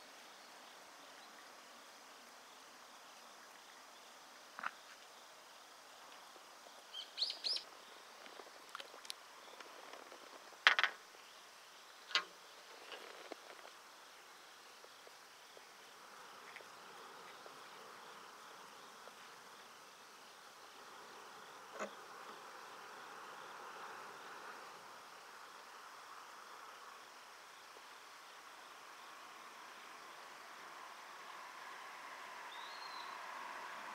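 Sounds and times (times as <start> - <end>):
faint insect hum: 0.0 - 33.9
high bird chirps: 6.9 - 7.6.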